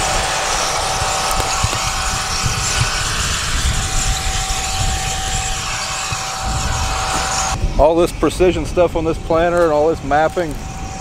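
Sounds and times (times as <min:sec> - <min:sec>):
tractor engine hum with whine: 0:00.0 - 0:07.6
wind buffeting microphone: 0:00.0 - 0:11.0.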